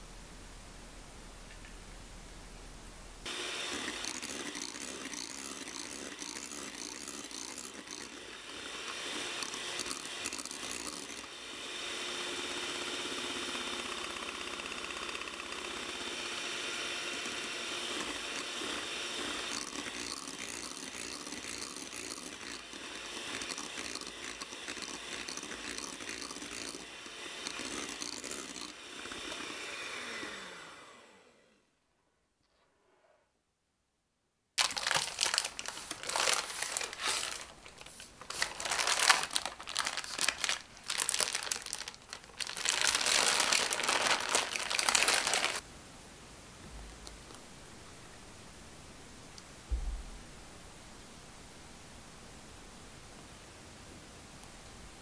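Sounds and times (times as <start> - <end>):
electric hand mixer whipping cream: 3.3 - 31.6, 34.6 - 45.6.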